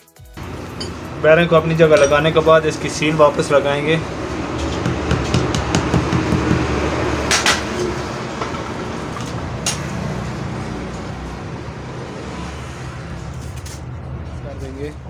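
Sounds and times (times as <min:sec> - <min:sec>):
hammer tapping metal: 0:00.4 - 0:03.3, 0:04.6 - 0:08.6.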